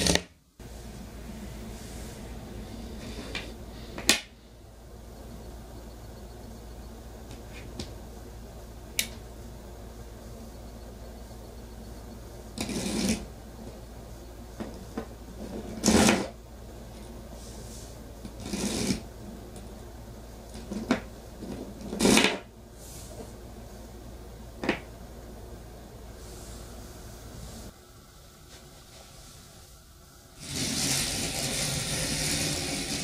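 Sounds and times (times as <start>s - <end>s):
battery train rattling through coil: 30.4s - 33.0s.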